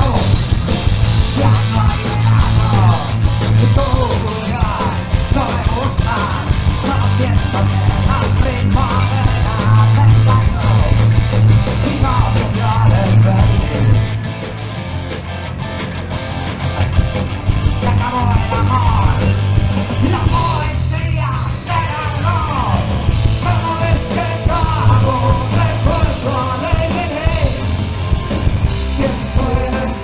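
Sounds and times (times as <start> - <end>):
bass guitar: 0.0 - 30.0
drums: 0.0 - 30.0
electric guitar: 0.0 - 30.0
person singing: 1.3 - 14.0, 20.0 - 27.6, 28.8 - 30.0.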